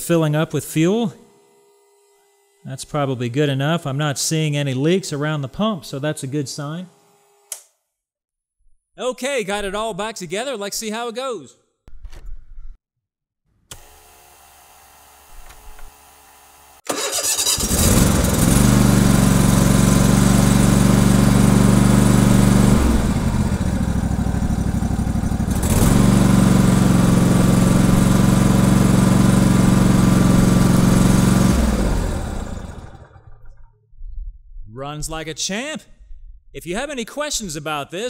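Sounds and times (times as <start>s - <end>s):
mower engine starting and running: 13.7s - 33.7s.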